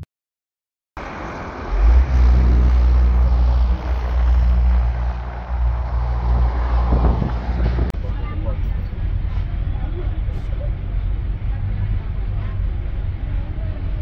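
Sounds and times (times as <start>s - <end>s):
wind buffeting microphone: 2.2s - 9.6s.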